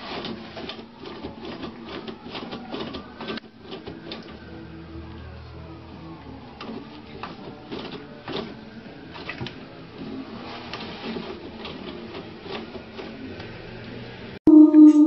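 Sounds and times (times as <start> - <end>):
toilet paper rustling and tearing: 0.0 - 4.4, 6.6 - 13.4.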